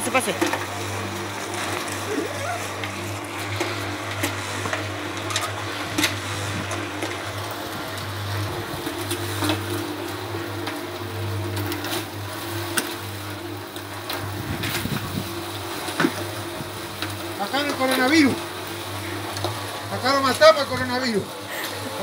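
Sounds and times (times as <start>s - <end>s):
concrete mixer motor hum: 0.0s - 22.0s.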